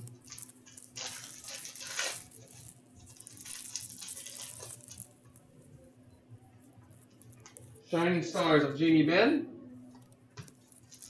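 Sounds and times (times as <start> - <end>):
foil wrapper crinkling and tearing: 0.0 - 5.2, 10.4 - 11.0.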